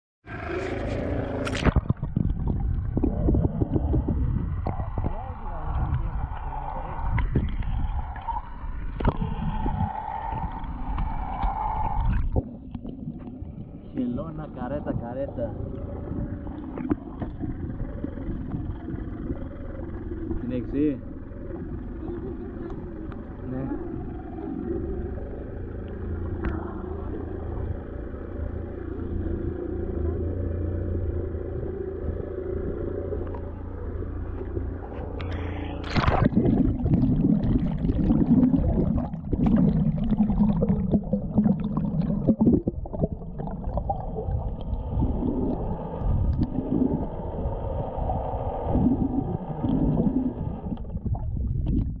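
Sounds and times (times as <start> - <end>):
underwater gurgling and crackling: 0.2 - 52.0
water rumble and slosh: 0.2 - 52.0
camera splashing into water: 35.2 - 36.4.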